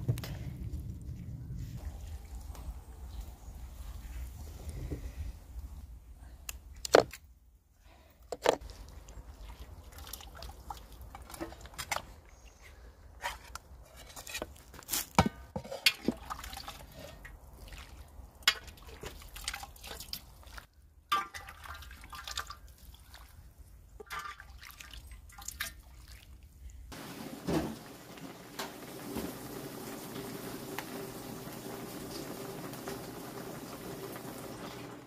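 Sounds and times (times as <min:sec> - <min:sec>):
broth dripping and splashing: 0:08.6 - 0:12.2, 0:16.0 - 0:35.0
metal ladle clinking on pots: 0:15.2 - 0:16.2, 0:21.1 - 0:21.6
pot of broth simmering: 0:26.9 - 0:35.0.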